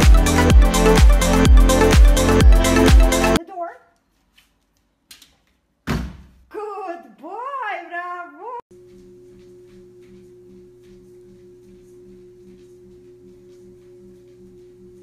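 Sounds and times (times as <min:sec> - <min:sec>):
treadmill humming: 0:08.8 - 0:15.0.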